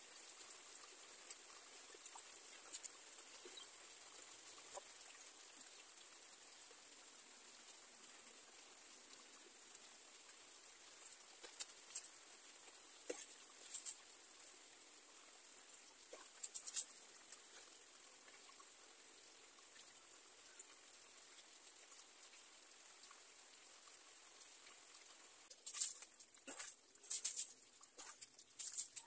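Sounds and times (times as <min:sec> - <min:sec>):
faint steady hiss: 0:00.0 - 0:29.0
water splashing on wheel: 0:13.0 - 0:14.1, 0:16.0 - 0:17.7, 0:25.5 - 0:29.0.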